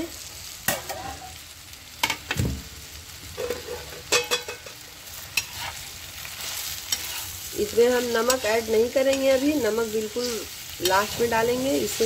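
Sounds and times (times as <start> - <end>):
okra sizzling in oil: 0.0 - 12.0
metal spatula scraping pan: 3.4 - 12.0.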